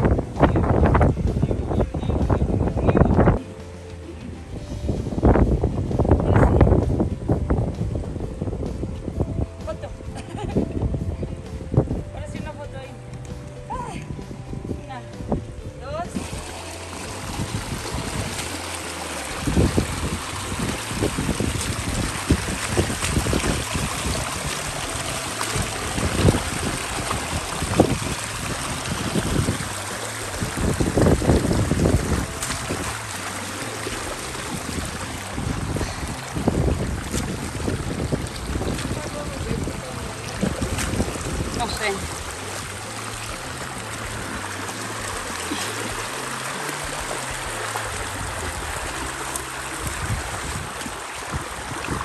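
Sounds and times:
wind buffeting microphone: 0.0s - 3.6s, 4.4s - 52.0s
creek water rushing over rocks: 16.1s - 52.0s.

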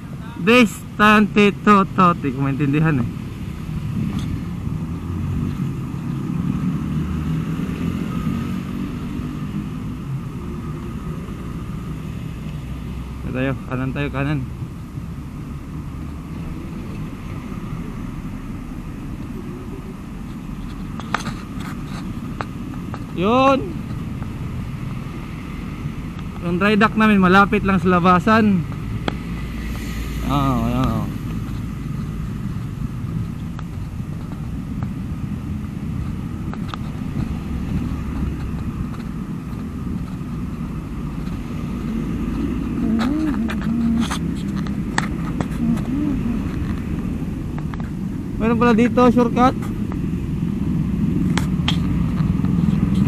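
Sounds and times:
cars driving past: 0.0s - 53.0s
street traffic rumble: 0.0s - 53.0s.

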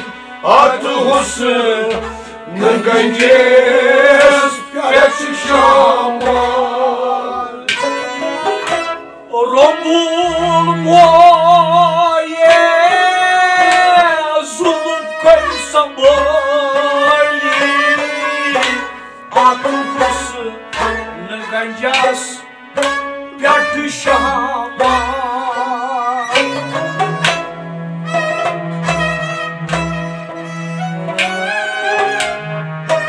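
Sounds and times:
ornamented string melody: 0.0s - 33.0s
hand drum: 26.3s - 33.0s.

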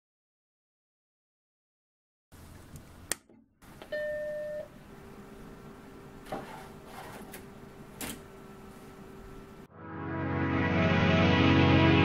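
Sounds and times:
computer humming: 3.6s - 9.7s.

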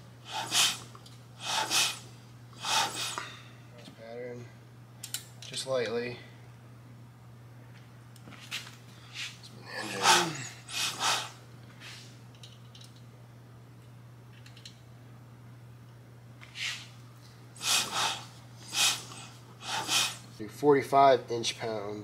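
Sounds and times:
person breathing noisily: 0.2s - 0.8s, 1.4s - 3.5s, 9.0s - 12.1s, 17.6s - 20.3s.

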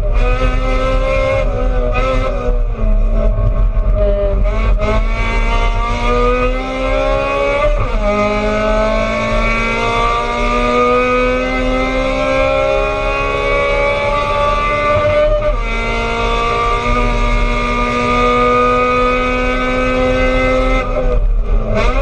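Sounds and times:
race car engine accelerating: 0.0s - 22.0s.

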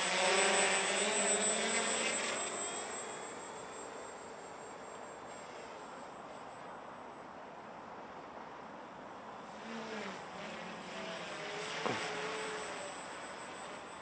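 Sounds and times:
drone propellers whirring: 0.0s - 6.0s, 9.3s - 14.0s.

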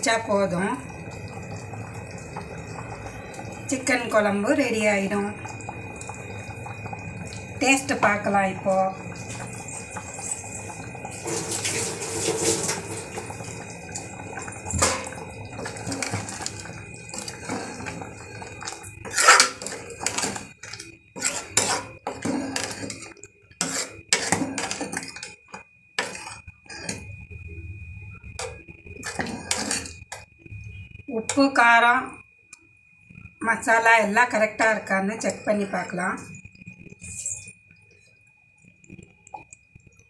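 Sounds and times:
metal spoon scraping pot: 14.7s - 27.2s, 28.4s - 30.2s.

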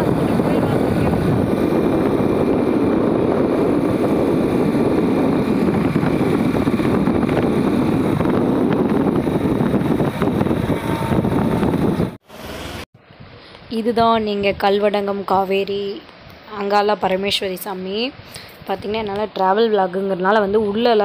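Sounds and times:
motorcycle engine running: 0.0s - 12.8s
wind rushing over microphone: 0.0s - 21.0s.

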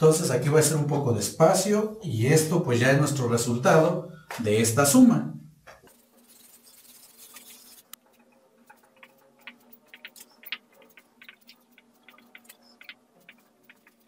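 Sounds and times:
eraser rubbing on whiteboard: 5.9s - 8.0s
marker writing on whiteboard: 5.9s - 14.0s.

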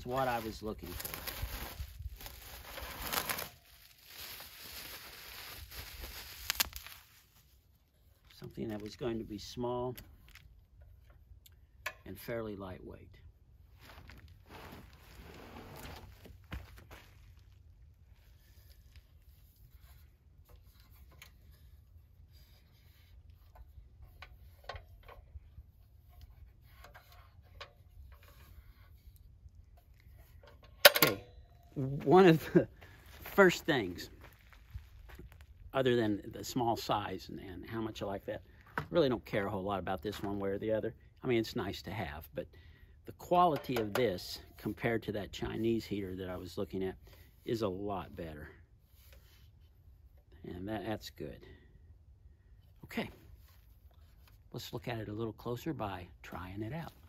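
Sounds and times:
plastic bag crinkling and rustling: 0.0s - 7.5s.

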